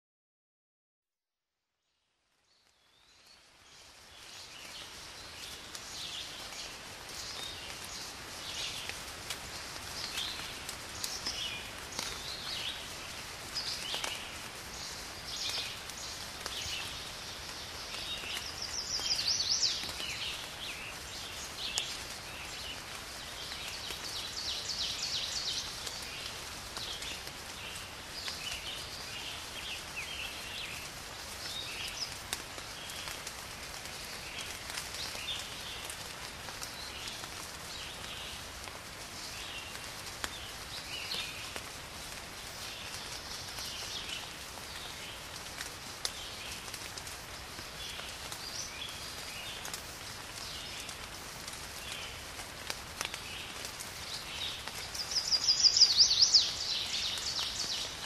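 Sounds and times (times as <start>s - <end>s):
birds chirping: 53.6s - 58.0s.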